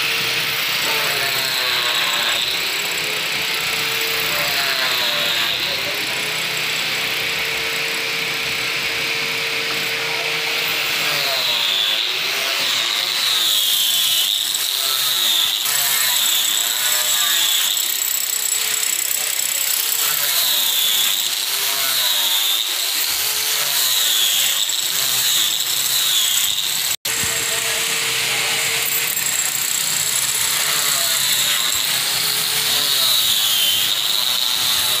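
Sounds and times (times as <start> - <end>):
power tool whining on wood: 0.0 - 35.0.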